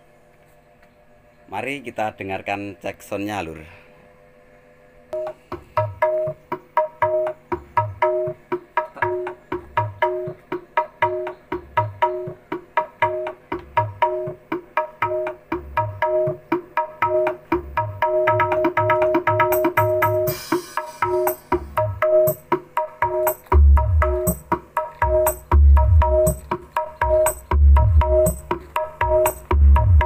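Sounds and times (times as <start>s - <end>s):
drum and bass music: 19.5s - 30.0s.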